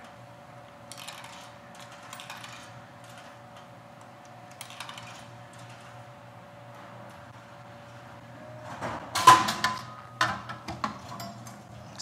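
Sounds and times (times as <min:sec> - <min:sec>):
steady hum: 0:00.0 - 0:12.0
vending machine clicks and clatter: 0:00.9 - 0:06.1, 0:08.7 - 0:12.0.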